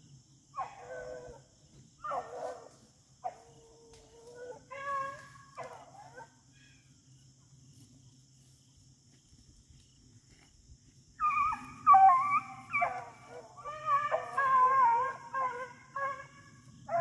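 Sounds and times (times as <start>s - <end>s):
hounds baying: 0.6s - 1.4s, 2.0s - 6.4s, 11.2s - 17.0s.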